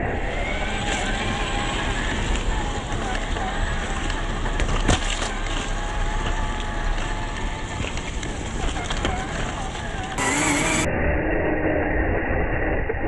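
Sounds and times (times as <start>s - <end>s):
electric motor and gears whining: 0.0s - 13.0s
tyres rolling over leaf litter: 0.5s - 10.2s.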